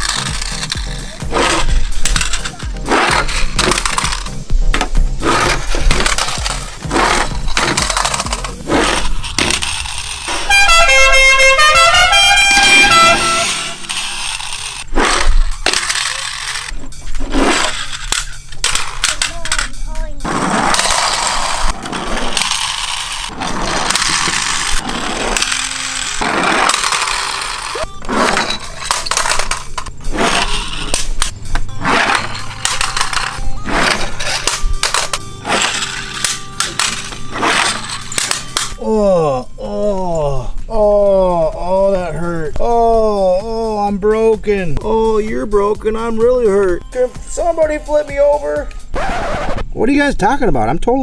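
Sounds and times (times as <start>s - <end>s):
toy cars clattering on concrete: 0.0s - 38.8s
bright horn-like tune: 10.3s - 14.3s.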